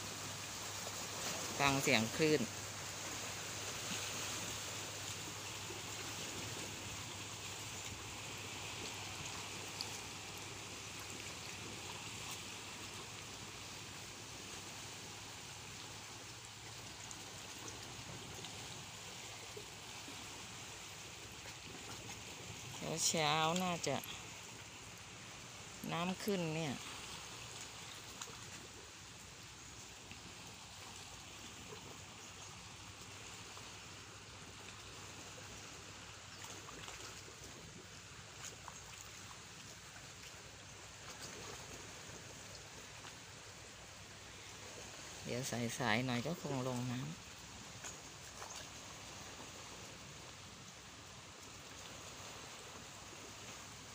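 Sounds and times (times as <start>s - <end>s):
waves lapping against rocks: 0.0s - 53.9s.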